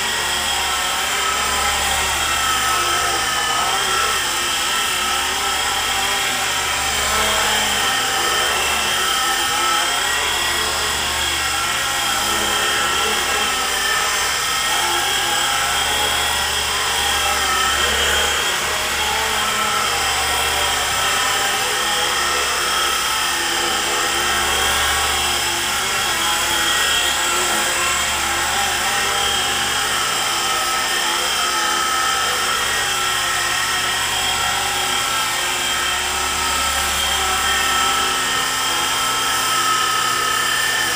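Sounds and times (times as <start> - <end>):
electric motors whining: 0.0 - 40.9
rotor whirring: 0.0 - 40.9.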